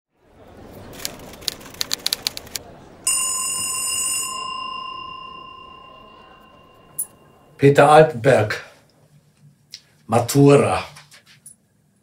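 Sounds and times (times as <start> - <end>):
sharp irregular clicks: 1.0 - 2.6
small bell ringing: 3.1 - 7.6.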